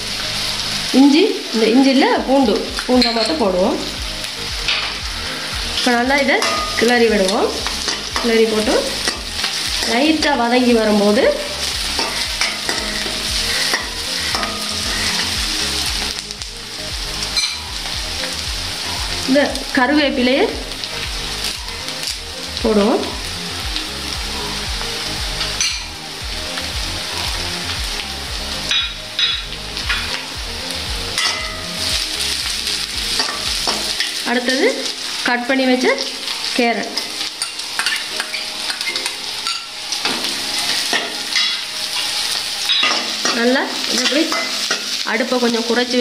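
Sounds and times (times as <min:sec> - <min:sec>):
onions sizzling in oil: 0:00.0 - 0:46.0
metal spoon scraping a pan: 0:02.9 - 0:03.5, 0:06.3 - 0:10.3, 0:10.9 - 0:15.4, 0:17.4 - 0:17.7, 0:31.2 - 0:31.8, 0:33.2 - 0:34.2, 0:36.9 - 0:45.0
steel spoon scraping pan: 0:12.0 - 0:15.4.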